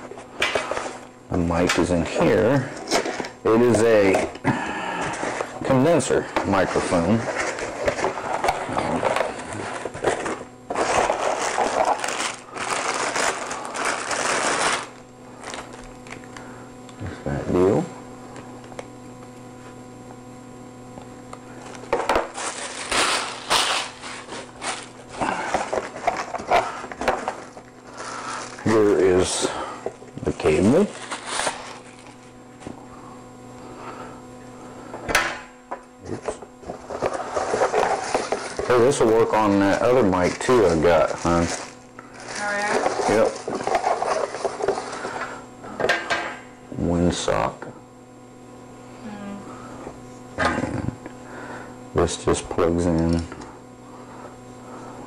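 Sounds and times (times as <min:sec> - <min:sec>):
faint steady hum: 0:00.0 - 0:55.0
cardboard packaging rustling: 0:06.6 - 0:16.3, 0:22.2 - 0:29.2, 0:30.5 - 0:32.4, 0:36.8 - 0:44.9
plastic wrap crinkling: 0:06.6 - 0:16.3, 0:21.7 - 0:29.0, 0:30.6 - 0:32.4, 0:36.8 - 0:44.9.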